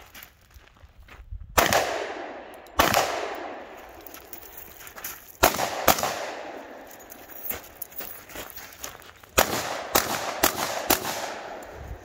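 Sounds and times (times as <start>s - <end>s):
pistol shots with echo: 1.6s - 3.9s, 5.4s - 6.9s, 9.4s - 11.8s.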